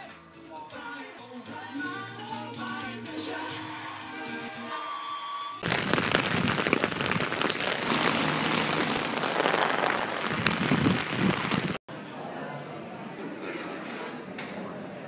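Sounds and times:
rain falling on an umbrella: 0:05.6 - 0:11.8.

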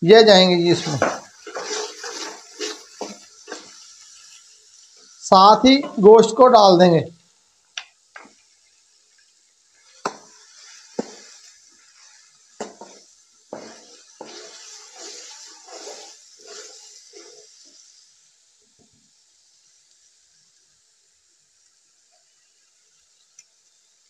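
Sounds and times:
wet scraping of stirring: 0:00.8 - 0:03.8, 0:12.0 - 0:17.6.

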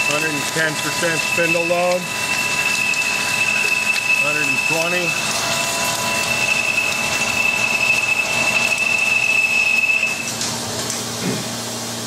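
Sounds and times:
drill squealing in steel: 0:00.9 - 0:10.3.

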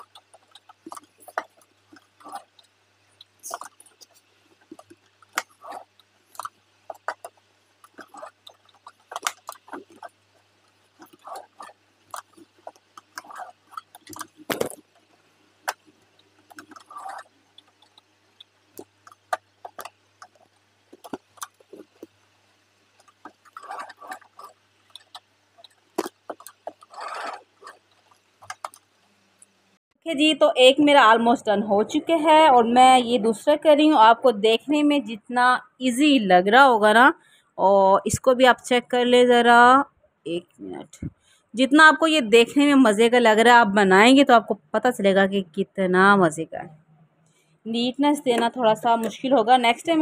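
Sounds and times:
sewing machine stitching: 0:15.6 - 0:18.0, 0:26.3 - 0:28.8.

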